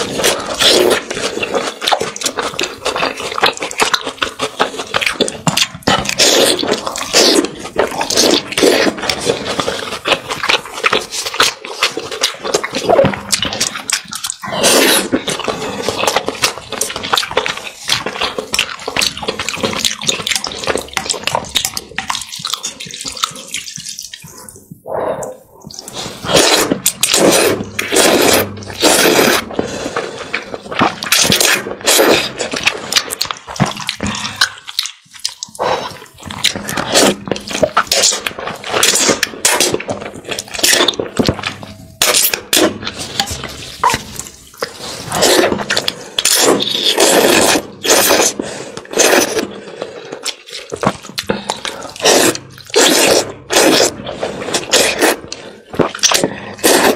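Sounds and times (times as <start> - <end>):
noodle slurping: 0.0 - 56.9.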